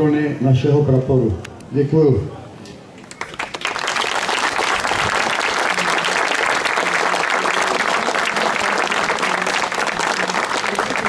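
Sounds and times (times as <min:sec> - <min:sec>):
crowd applauding: 0:03.0 - 0:11.0.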